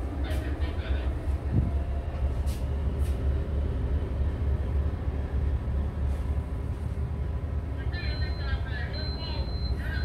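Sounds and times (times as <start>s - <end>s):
low rumble of ship engines: 0.0s - 10.0s.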